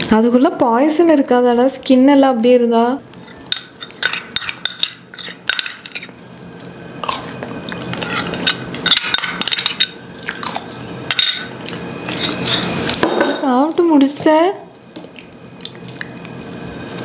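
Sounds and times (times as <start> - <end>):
spoon clinking and scraping in bowl: 3.3 - 6.1, 7.9 - 10.0, 11.1 - 13.5.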